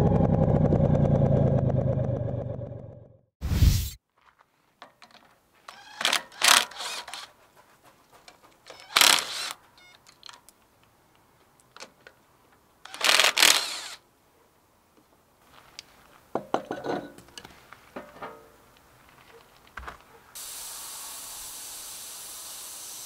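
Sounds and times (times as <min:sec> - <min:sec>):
metal-on-metal tool noise: 0:04.8 - 0:07.4, 0:08.2 - 0:10.4.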